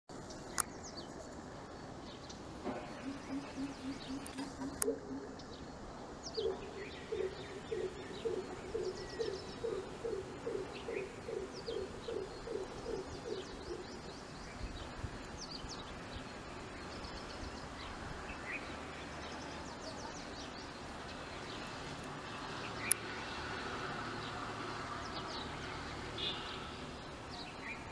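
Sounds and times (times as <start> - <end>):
small birds chirping: 2.0 - 21.9
deep hooting bird calls: 2.8 - 5.7, 6.3 - 14.0.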